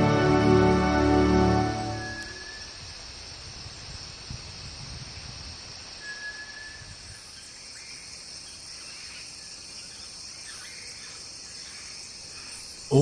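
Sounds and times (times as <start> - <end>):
insect chorus: 0.0 - 13.0
short thin whistle: 1.9 - 2.7, 6.0 - 7.0
faint bird chirps: 2.0 - 3.0, 6.0 - 13.0.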